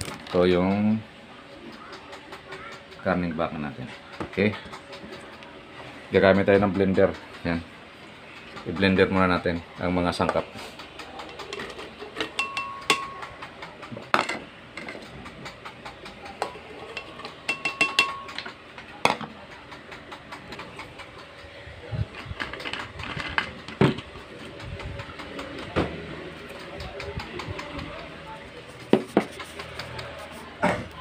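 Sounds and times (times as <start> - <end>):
glass and kitchen items clinking: 11.5 - 13.3, 16.4 - 19.2.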